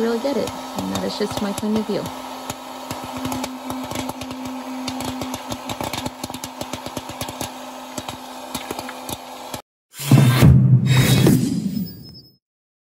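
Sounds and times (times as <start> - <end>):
popcorn maker fan humming: 0.0 - 9.6
popcorn popping: 0.0 - 9.6.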